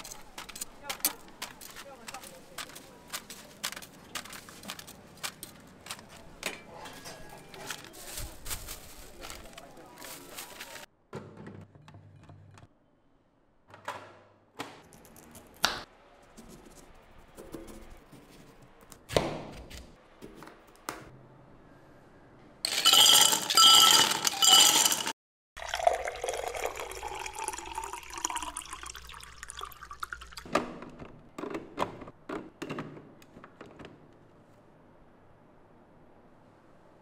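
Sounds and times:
dishes and utensils clinking: 0:22.7 - 0:25.1
liquid being poured: 0:25.6 - 0:30.5.

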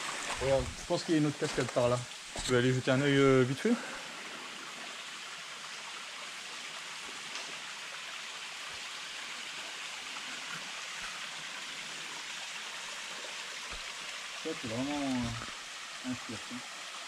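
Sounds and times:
waterfall rushing: 0:13.7 - 0:16.6.

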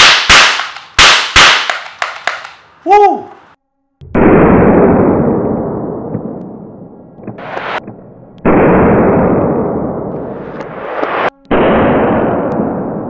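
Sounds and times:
slowed-down revolver bangs: 0:00.0 - 0:02.6.

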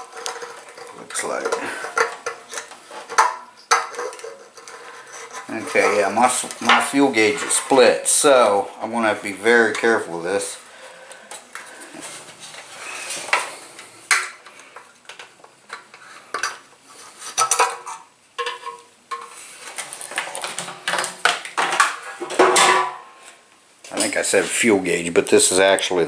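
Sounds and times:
clicks and knocks of handling: 0:00.0 - 0:07.6.

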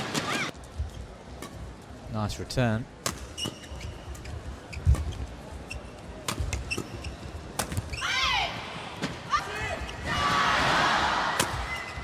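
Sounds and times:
shoes squeaking on floor: 0:03.3 - 0:08.1.

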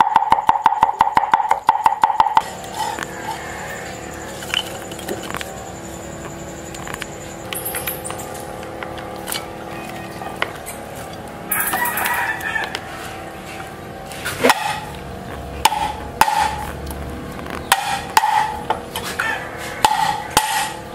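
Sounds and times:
chickens clucking: 0:02.4 - 0:05.5
rooster crowing: 0:02.4 - 0:05.8, 0:11.4 - 0:13.7, 0:19.0 - 0:20.8.

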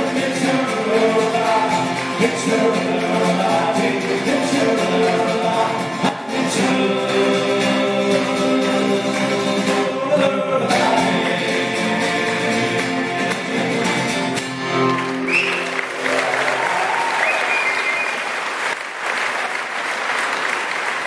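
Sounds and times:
person singing folk song: 0:00.0 - 0:15.5
plucked string instrument: 0:00.0 - 0:15.8
strummed acoustic guitar: 0:00.0 - 0:16.0.

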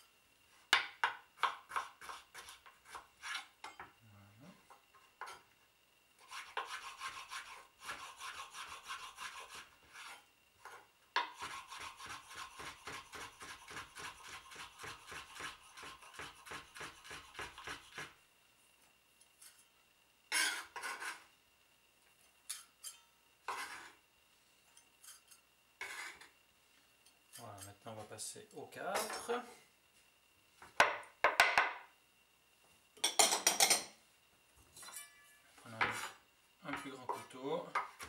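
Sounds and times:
knife chopping on wooden board: 0:00.8 - 0:03.1
short scraping sounds: 0:23.5 - 0:24.0.

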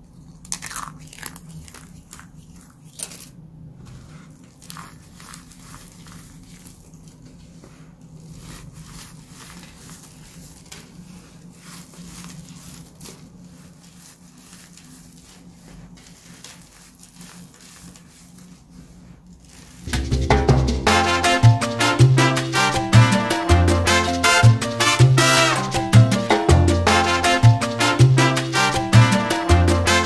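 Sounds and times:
hands crushing powder: 0:00.1 - 0:19.9
loud upbeat music: 0:19.9 - 0:30.0.

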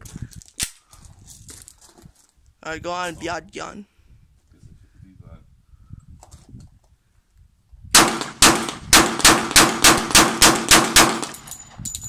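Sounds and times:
pistol shots: 0:07.9 - 0:11.5.

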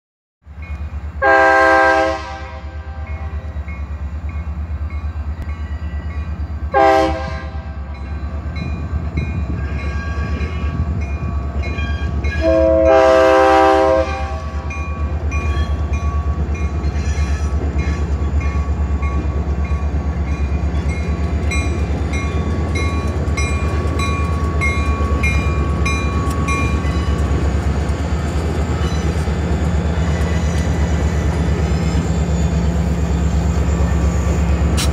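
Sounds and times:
diesel locomotive rumble: 0:00.4 - 0:34.9
locomotive horn blasts: 0:01.2 - 0:03.4, 0:06.7 - 0:07.8, 0:12.4 - 0:14.7
crossing bell dinging: 0:07.8 - 0:13.0, 0:14.2 - 0:27.4.

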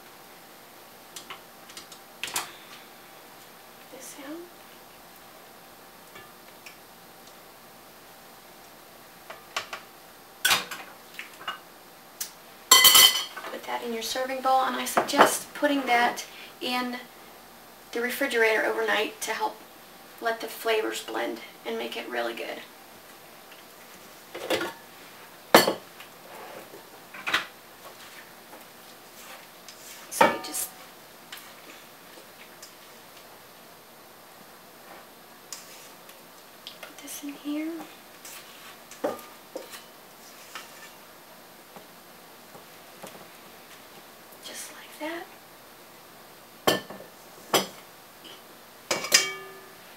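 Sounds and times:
metal bowl ringing: 0:12.7 - 0:13.3, 0:49.0 - 0:49.8.

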